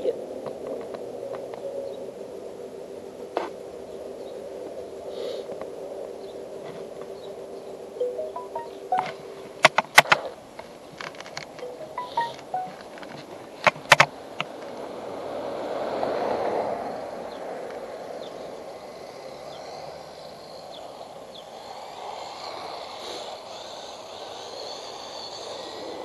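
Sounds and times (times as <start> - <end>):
sharp clicks: 13.8 - 14.1
rc car electric motor whining: 18.9 - 26.0.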